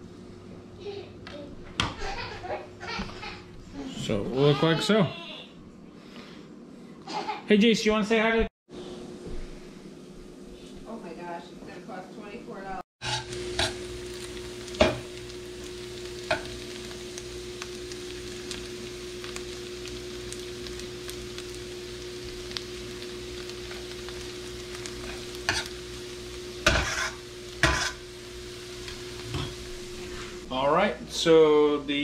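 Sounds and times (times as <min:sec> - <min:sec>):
metal utensil scraping pan: 0:13.0 - 0:13.8, 0:25.0 - 0:25.8, 0:26.6 - 0:28.0
vegetables sizzling in a pan: 0:13.0 - 0:32.0.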